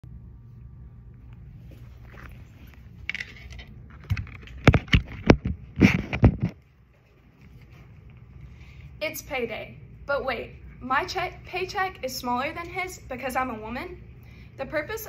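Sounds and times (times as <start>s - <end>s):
phone scraping rubs: 5.8s - 6.6s.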